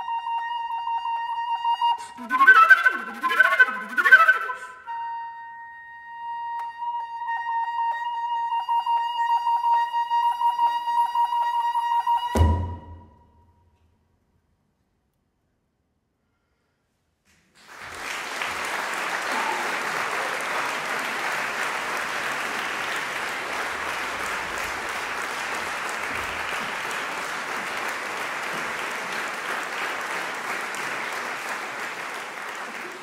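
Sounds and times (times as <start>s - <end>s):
audience applause: 17.4s - 33.0s.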